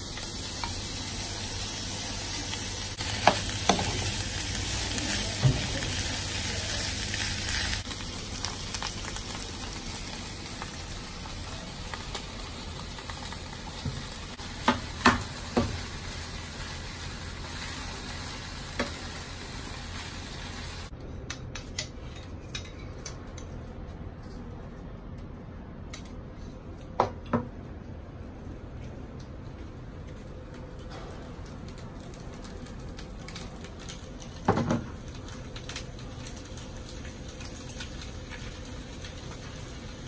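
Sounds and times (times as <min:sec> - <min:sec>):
rice sizzling in a pan: 0:00.0 - 0:20.9, 0:31.6 - 0:40.0.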